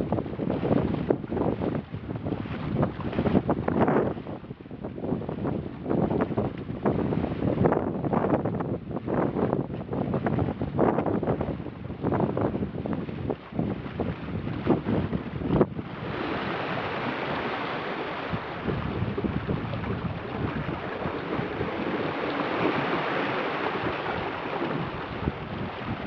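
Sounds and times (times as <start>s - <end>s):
boat rushing through water: 0.0s - 26.0s
wind buffeting microphone: 0.0s - 26.0s.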